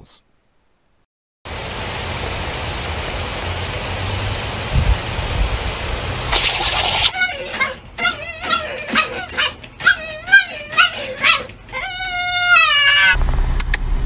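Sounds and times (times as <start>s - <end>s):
sprinkler spraying water hiss: 1.5s - 7.2s.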